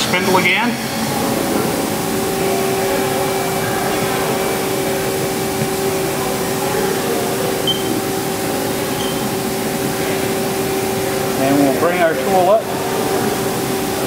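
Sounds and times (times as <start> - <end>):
lathe spindle hum and whine: 0.0 - 14.0
short high beeps: 7.6 - 8.0.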